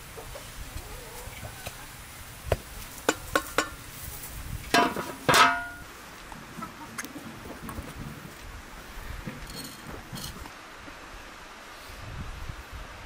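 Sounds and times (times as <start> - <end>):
metal pot lid clanging: 4.7 - 5.8.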